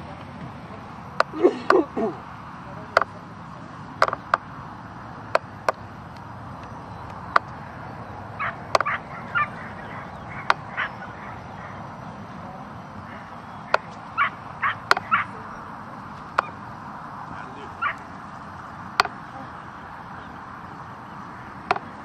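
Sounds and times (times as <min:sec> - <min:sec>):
sharp clicks: 0:04.0 - 0:04.5, 0:05.3 - 0:07.6, 0:08.7 - 0:09.0, 0:18.0 - 0:19.2, 0:21.6 - 0:22.0
dogs barking: 0:08.2 - 0:16.7, 0:17.4 - 0:18.2.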